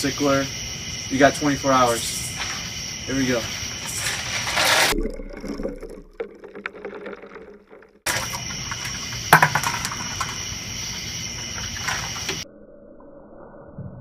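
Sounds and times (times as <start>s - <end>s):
high-pitched hiss: 0.0s - 4.9s
ice water sloshing in bucket: 3.3s - 10.4s.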